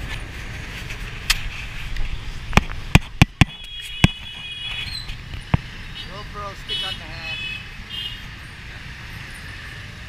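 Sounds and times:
motorbike traffic rumble: 0:00.0 - 0:10.0
sharp knocks near microphone: 0:02.5 - 0:05.7.

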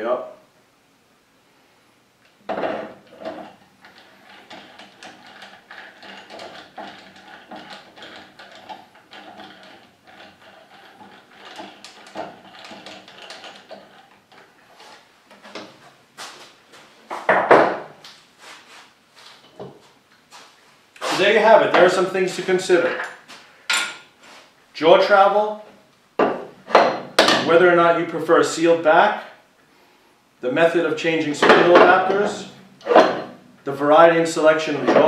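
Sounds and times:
metal clatter: 0:02.5 - 0:15.8, 0:31.4 - 0:33.4
metal chuck clicks and scrapes: 0:03.0 - 0:14.5.

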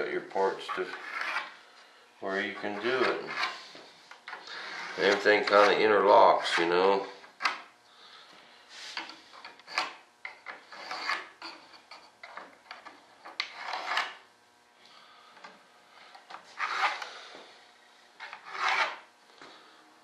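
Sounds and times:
wooden parts scraping: 0:00.6 - 0:01.6, 0:02.5 - 0:07.6, 0:08.8 - 0:14.2, 0:16.1 - 0:19.1.

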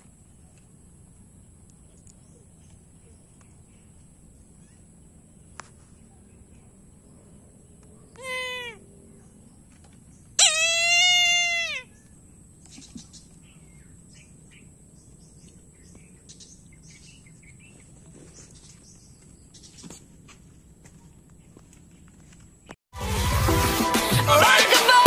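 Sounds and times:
animal calls: 0:07.8 - 0:09.4, 0:10.4 - 0:12.2.

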